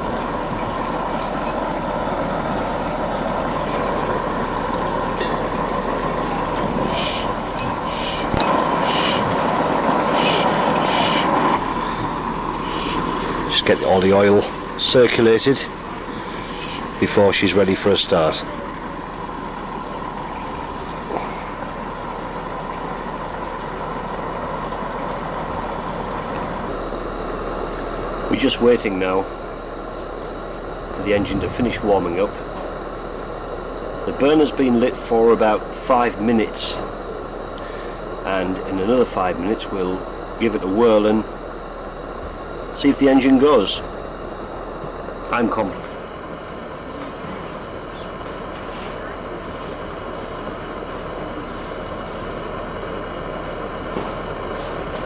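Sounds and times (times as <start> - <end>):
burner hissing: 0.0 - 55.0
short rasping rubs: 10.1 - 11.4.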